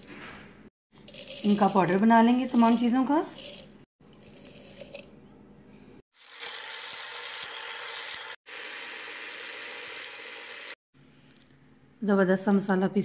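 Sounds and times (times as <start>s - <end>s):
spices rustling into jar: 1.0s - 5.2s.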